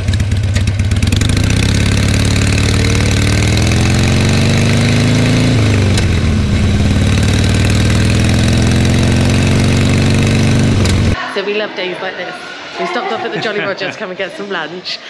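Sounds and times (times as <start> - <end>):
motorcycle engine accelerating: 0.0 - 11.2.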